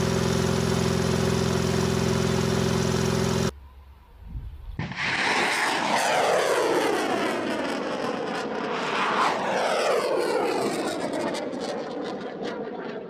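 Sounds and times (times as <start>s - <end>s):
rocket motor roaring: 0.0s - 3.5s.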